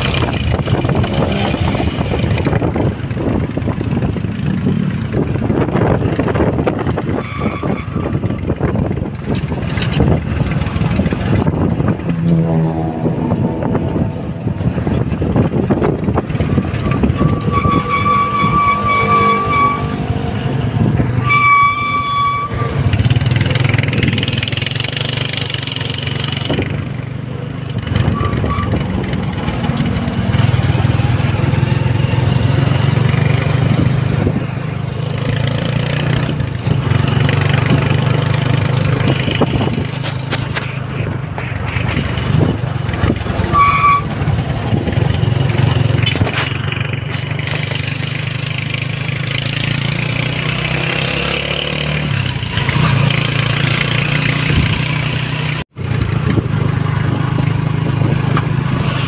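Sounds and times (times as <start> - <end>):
low engine drone: 0.0 - 35.7, 55.5 - 59.0
wind noise: 0.0 - 48.8, 50.7 - 59.0
street traffic: 0.0 - 59.0
vehicle horn: 7.0 - 8.5, 16.5 - 20.6, 21.2 - 23.2, 28.0 - 28.9, 43.5 - 44.2.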